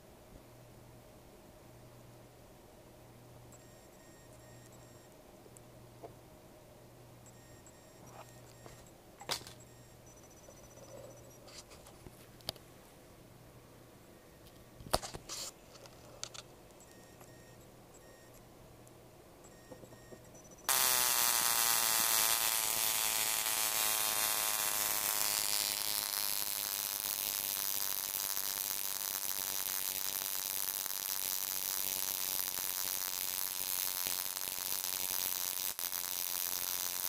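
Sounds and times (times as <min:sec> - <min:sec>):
stun gun buzzing: 0:20.7 - 0:37.0.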